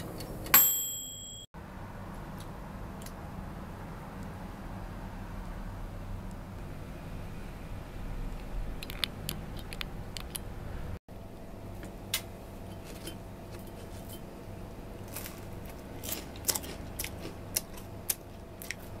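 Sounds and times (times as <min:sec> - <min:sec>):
crunching bread sticks: 0:15.0 - 0:19.0.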